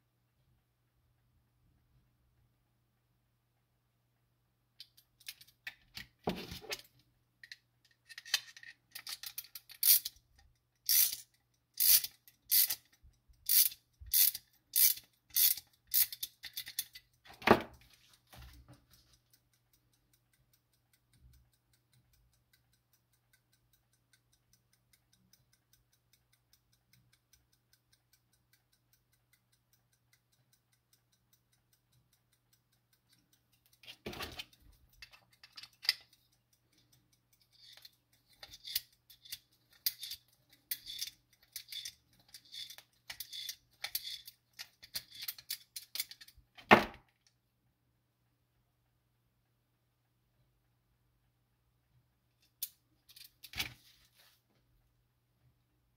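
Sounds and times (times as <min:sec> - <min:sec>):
ratchet clicks of winding: 0:07.4 - 0:17.3, 0:18.9 - 0:46.4
clock escapement ticking faintly: 0:08.8 - 0:46.5.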